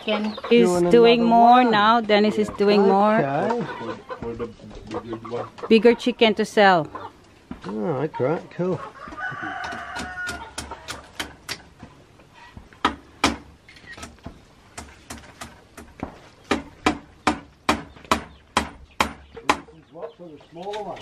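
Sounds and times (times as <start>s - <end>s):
hammer knocking on wood: 14.2s - 19.7s.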